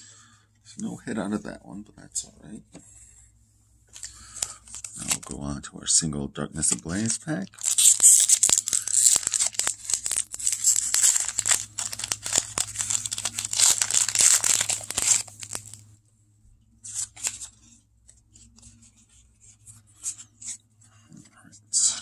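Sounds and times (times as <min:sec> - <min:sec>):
foil wrapper crinkling: 0:04.0 - 0:05.3, 0:06.9 - 0:15.8.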